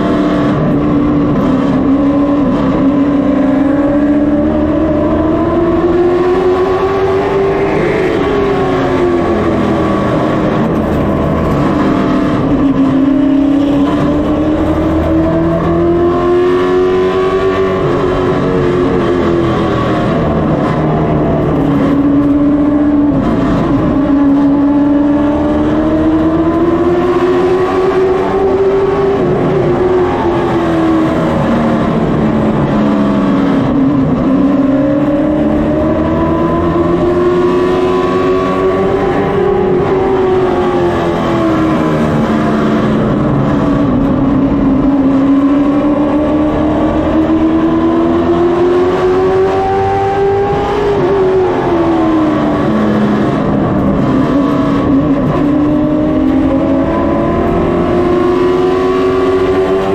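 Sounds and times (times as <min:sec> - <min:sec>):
race car engine running hard: 0:00.0 - 0:59.9.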